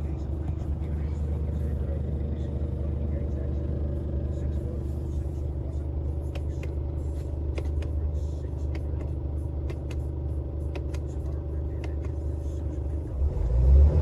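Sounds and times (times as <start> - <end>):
diesel engine idling: 0.0 - 14.0.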